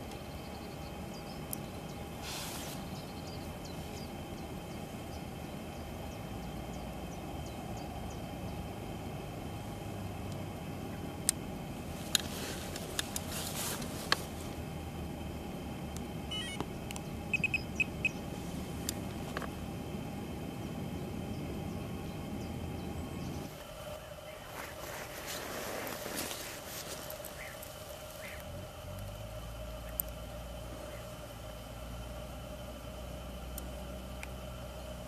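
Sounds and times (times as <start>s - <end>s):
faint steady hum: 0.0s - 35.0s
short high beeps: 16.3s - 16.6s, 17.3s - 18.2s.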